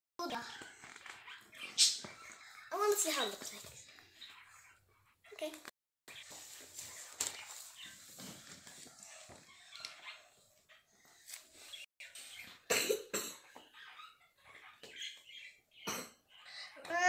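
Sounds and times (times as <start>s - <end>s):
paper rustling and crinkling: 6.2s - 9.6s.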